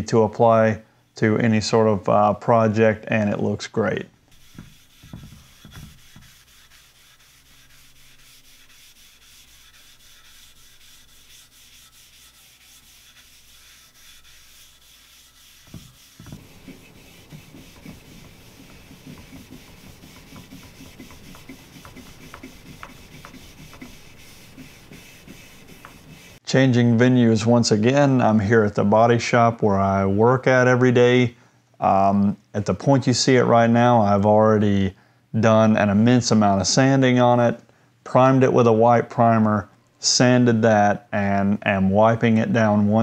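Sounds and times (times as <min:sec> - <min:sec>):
pad rubbing oil onto wood: 0:04.3 - 0:26.4.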